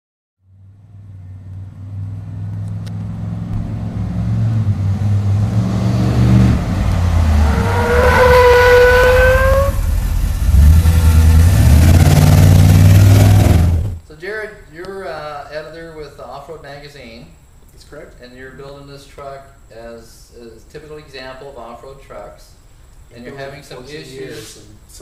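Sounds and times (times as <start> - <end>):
large vehicle engine revving: 0.9 - 14.0
high squeal: 6.8 - 13.8.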